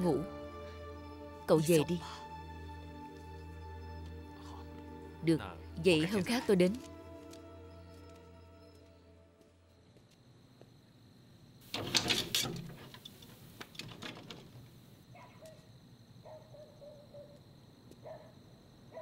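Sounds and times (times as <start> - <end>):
wooden door shutting with rattles: 11.6 - 14.7.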